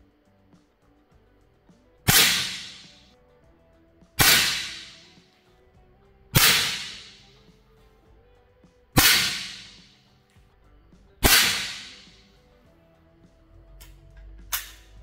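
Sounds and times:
rifle shots: 0:02.1 - 0:03.0, 0:04.2 - 0:05.0, 0:06.4 - 0:07.2, 0:09.0 - 0:09.9, 0:11.2 - 0:12.1.

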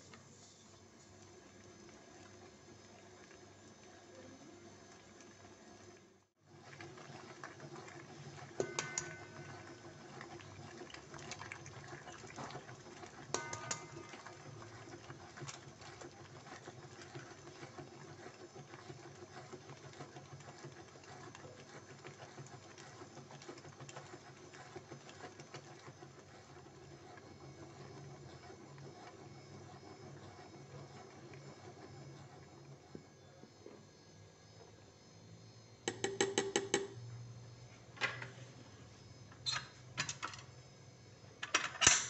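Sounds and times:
stand mixer motor running: 0:01.2 - 0:32.9.

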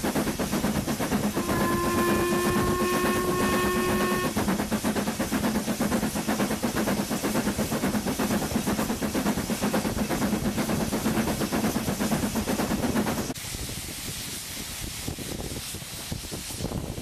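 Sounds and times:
locomotive exhaust beats: 0:00.0 - 0:13.4
running train hiss and rumble: 0:00.0 - 0:17.0
steam locomotive whistle: 0:01.3 - 0:04.5.

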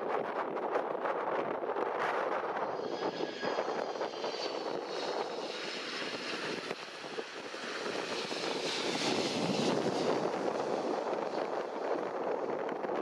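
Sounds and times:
jet airliner engines: 0:00.0 - 0:13.0
faint high whine: 0:02.4 - 0:12.6.

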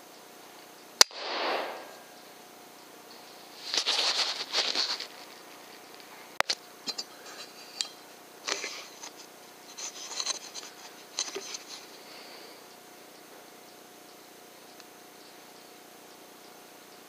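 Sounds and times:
air rifle shot: 0:01.0 - 0:02.1
rustling and scratching in straw: 0:03.2 - 0:06.3, 0:08.5 - 0:12.1.

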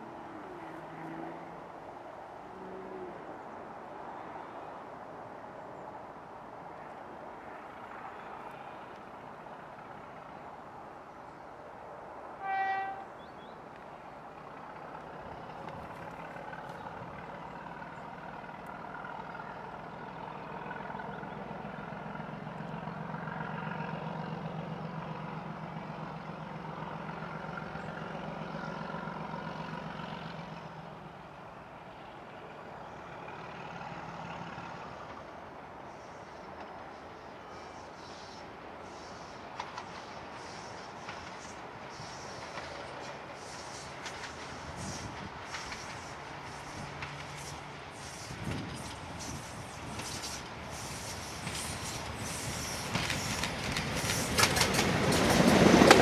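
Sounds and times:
locomotive horn toot: 0:12.4 - 0:13.2.

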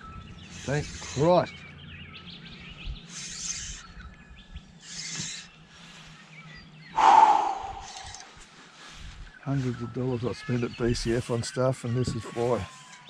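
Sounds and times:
birds chirping faintly: 0:00.0 - 0:13.0
short rushing noises: 0:07.0 - 0:08.3
steady low hum: 0:07.0 - 0:08.3.

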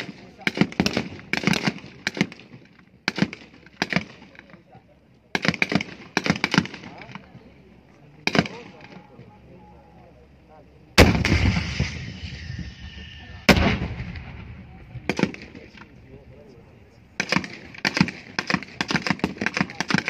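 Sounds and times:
gunshots: 0:00.0 - 0:04.4, 0:05.3 - 0:07.2, 0:08.2 - 0:08.8, 0:11.0 - 0:15.8, 0:17.2 - 0:20.0
echoing explosive blasts: 0:11.0 - 0:15.8.

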